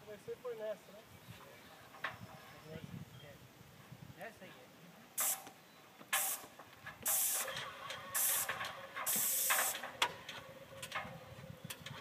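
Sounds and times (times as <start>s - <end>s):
paint spray gun hissing: 5.2s - 5.5s, 6.1s - 6.5s, 7.1s - 7.6s, 8.2s - 9.9s.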